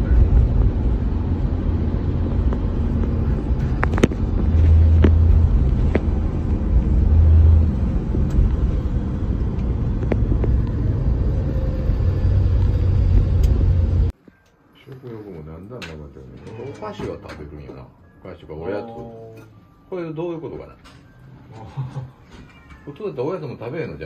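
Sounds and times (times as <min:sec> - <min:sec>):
car engine and road rumble: 0:00.0 - 0:14.2.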